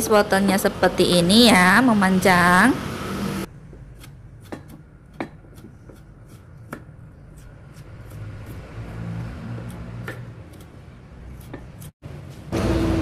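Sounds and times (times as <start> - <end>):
knife slicing carrot: 3.8 - 12.5.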